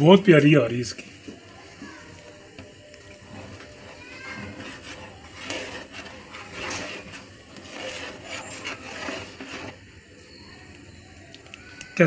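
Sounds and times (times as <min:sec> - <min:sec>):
metal spoon scraping a pot: 0:03.2 - 0:09.8.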